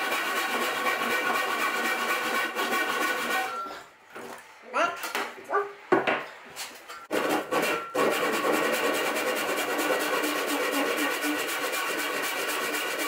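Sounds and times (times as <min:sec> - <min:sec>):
handsaw sawing wood: 0:00.0 - 0:03.6, 0:07.1 - 0:13.0.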